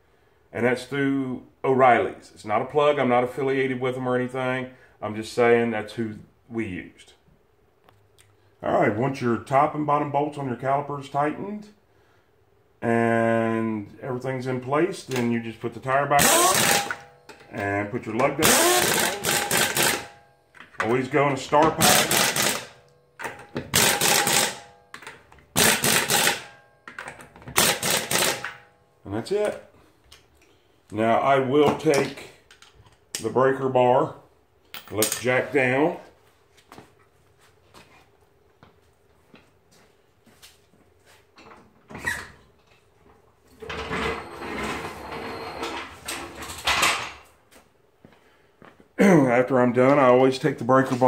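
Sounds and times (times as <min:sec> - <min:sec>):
floor jack rolling on concrete: 0:16.2 - 0:17.6, 0:18.4 - 0:20.9, 0:21.5 - 0:28.6, 0:43.6 - 0:47.0
pneumatic impact wrench rattling: 0:16.2 - 0:17.6, 0:18.2 - 0:20.8, 0:21.6 - 0:28.7.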